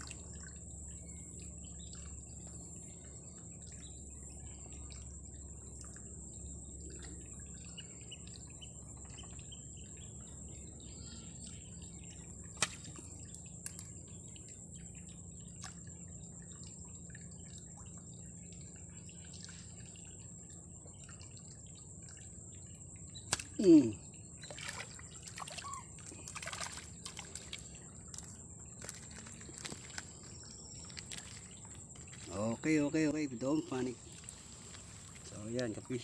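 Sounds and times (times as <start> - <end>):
water dripping: 0.0 - 36.0
fish splashing in water: 12.2 - 14.5, 15.3 - 33.1.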